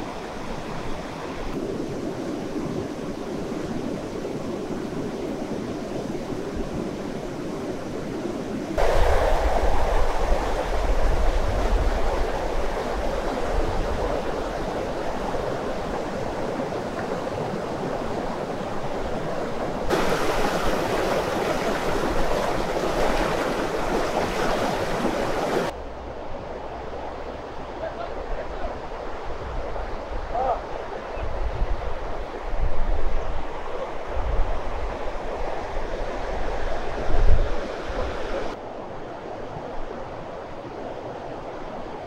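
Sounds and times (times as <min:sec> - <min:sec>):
river rushing over rocks: 0:08.8 - 0:25.8.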